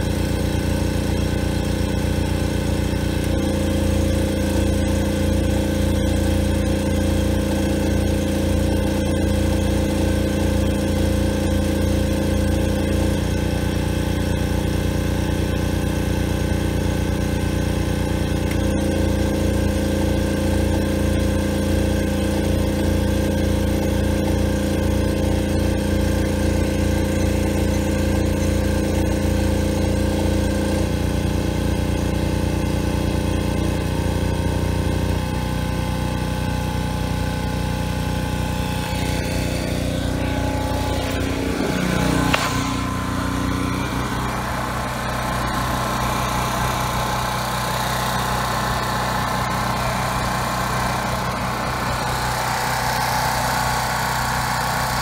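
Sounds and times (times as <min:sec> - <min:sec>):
generator engine running: 0:00.0 - 0:55.0
sharp click: 0:42.2 - 0:43.0.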